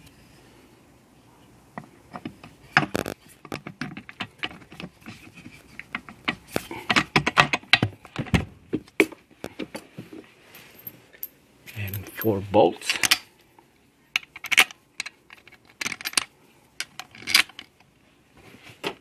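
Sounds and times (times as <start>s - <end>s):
metal parts clicking and clinking: 10.5s - 13.3s, 14.1s - 17.8s.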